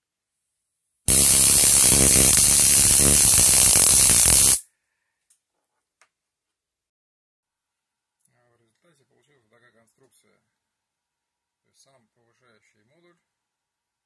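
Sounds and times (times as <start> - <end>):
loud harsh electric arc buzz: 1.1 - 4.6.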